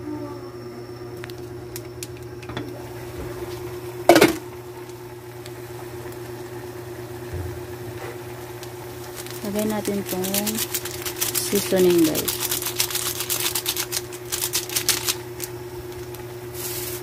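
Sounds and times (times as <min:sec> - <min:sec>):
stove hum: 0:00.0 - 0:17.0
saucepan simmering: 0:02.7 - 0:11.8.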